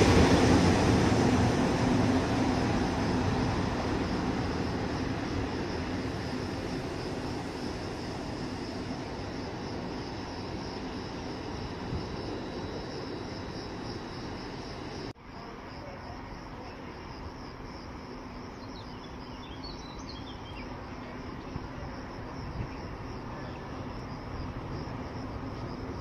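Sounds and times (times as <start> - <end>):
insects chirring: 0.0 - 26.0
bird chirps: 18.6 - 20.8.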